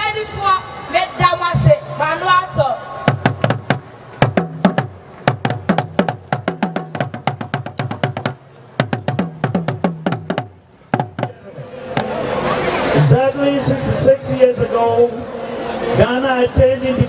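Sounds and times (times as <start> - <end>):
talking drums beaten with sticks: 3.0 - 12.2.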